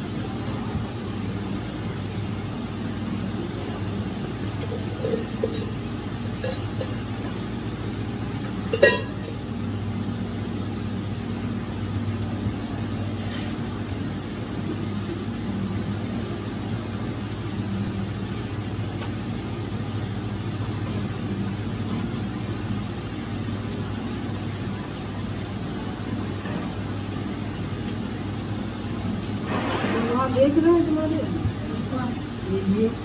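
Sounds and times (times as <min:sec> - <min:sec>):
low mechanical hum: 0:00.0 - 0:33.0
metal utensil clinking on cookware: 0:04.6 - 0:05.8, 0:06.4 - 0:07.1, 0:08.7 - 0:09.4.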